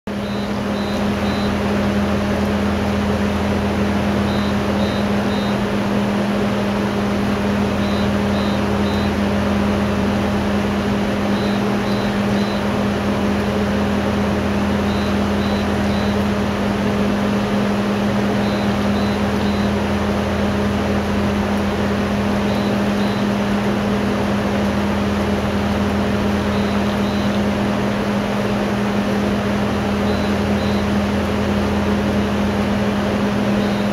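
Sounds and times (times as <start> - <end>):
machine hum: 0.1 - 33.9
short high beeps: 0.2 - 1.6, 4.3 - 5.6, 7.8 - 9.2, 11.3 - 12.7, 14.9 - 16.2, 18.4 - 19.8, 22.5 - 23.3, 26.5 - 27.4, 33.6 - 33.9.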